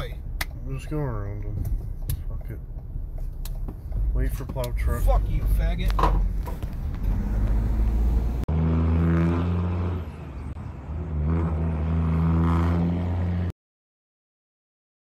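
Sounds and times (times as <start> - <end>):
vehicle rumble from inside cab: 0.0 - 8.5
heavy engine revving: 4.8 - 10.3.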